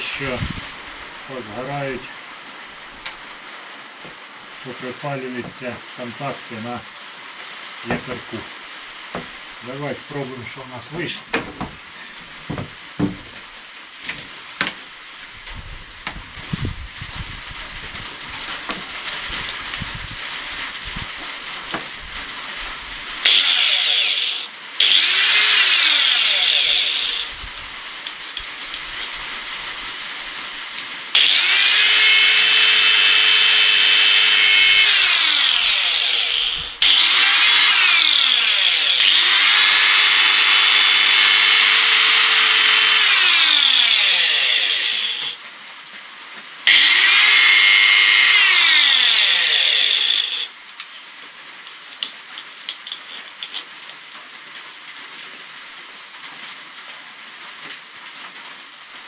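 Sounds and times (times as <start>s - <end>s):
angle grinder whining: 23.2s - 27.4s, 31.1s - 45.4s, 46.7s - 50.5s.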